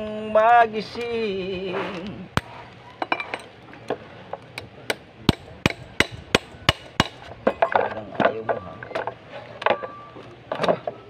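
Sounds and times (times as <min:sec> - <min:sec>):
hammer tapping on metal: 0:04.9 - 0:07.2.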